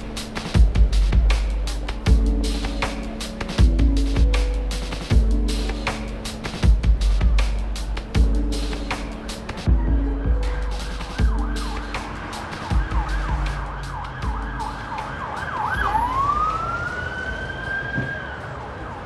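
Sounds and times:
low traffic rumble: 0.0 - 19.0
emergency vehicle siren: 9.6 - 19.0.

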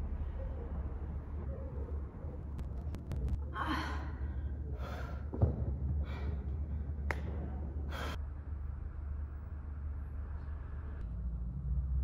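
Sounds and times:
steady low hum: 0.0 - 12.0
person breathing hard: 7.8 - 8.2.

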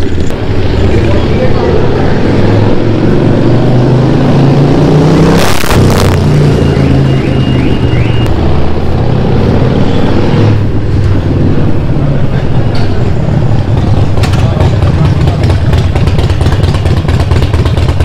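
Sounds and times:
motorcycle engine running: 5.8 - 18.0.

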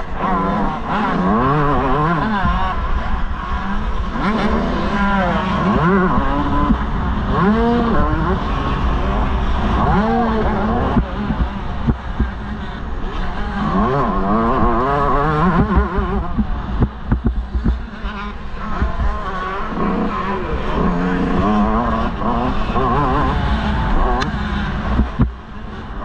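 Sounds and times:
motorbike engine revving: 0.0 - 26.0
rumble and sharp knocks: 15.5 - 17.9, 24.2 - 25.5.

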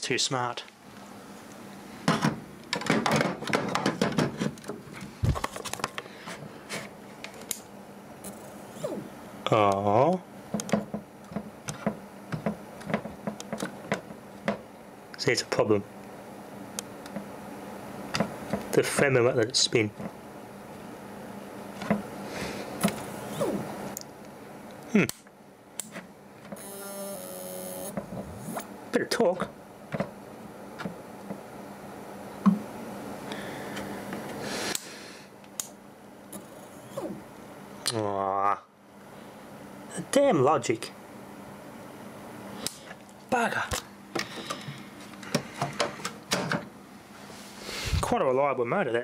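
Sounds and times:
faint steady hum: 0.0 - 49.0
short falling whirs: 8.4 - 9.1
hard drive motor humming: 26.6 - 28.6
buzzing tone: 26.6 - 28.7.

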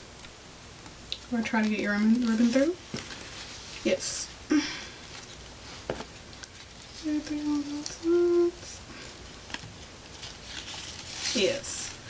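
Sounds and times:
woman humming notes: 7.0 - 8.8.

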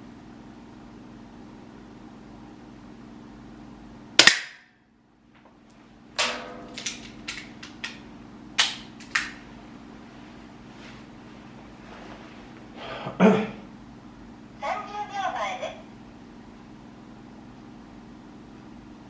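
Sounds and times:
air pistol shot: 4.2 - 4.7
low hum: 5.0 - 12.9.

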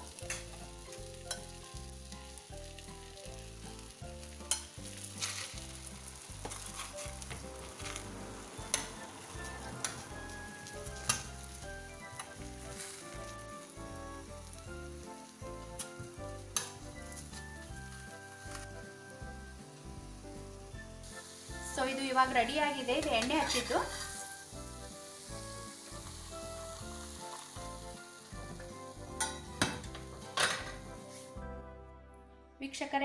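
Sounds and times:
paratha sizzling in oil: 0.0 - 31.6
spoon clicking against pan: 4.4 - 4.7.

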